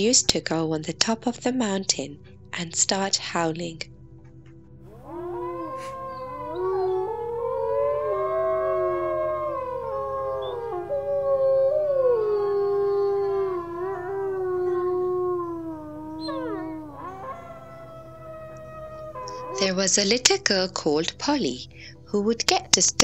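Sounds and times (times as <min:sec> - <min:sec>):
wolves howling: 0:04.8 - 0:20.3.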